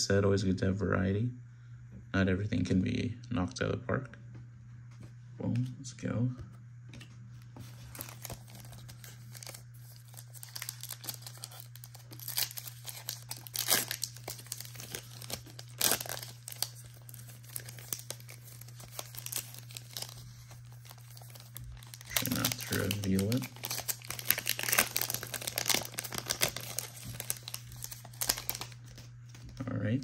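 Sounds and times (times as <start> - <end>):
low steady hum: 0.0 - 30.0
foil wrapper crinkling: 7.6 - 29.5.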